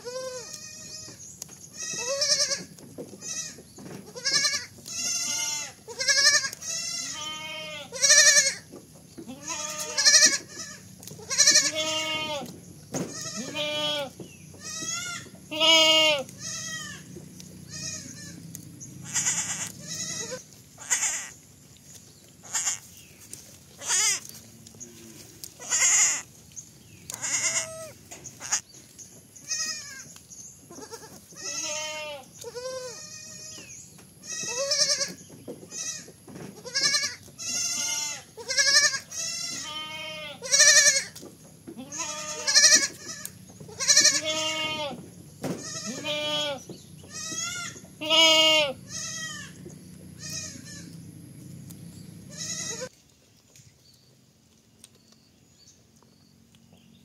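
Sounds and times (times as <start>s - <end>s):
goat kids bleating: 0.0s - 21.6s, 22.4s - 26.4s, 27.0s - 28.7s, 29.4s - 51.1s, 52.2s - 53.0s
leafy plants torn and chewed: 0.4s - 0.7s, 9.8s - 11.8s, 16.2s - 29.1s.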